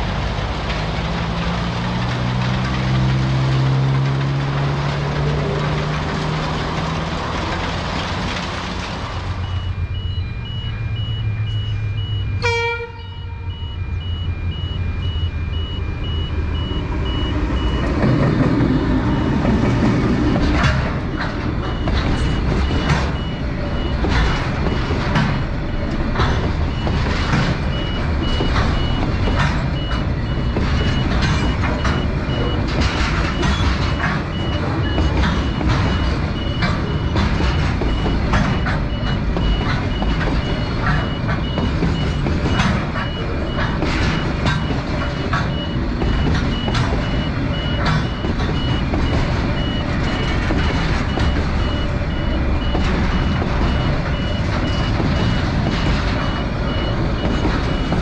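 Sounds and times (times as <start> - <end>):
heavy machinery engine rumbling: 0.0 - 58.0
fast high warning beeps: 9.4 - 18.2, 20.2 - 58.0.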